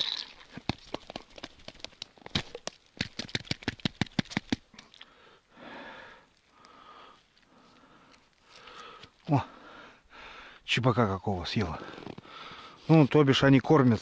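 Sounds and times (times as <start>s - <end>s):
soft rustle: 6.3s - 9.3s.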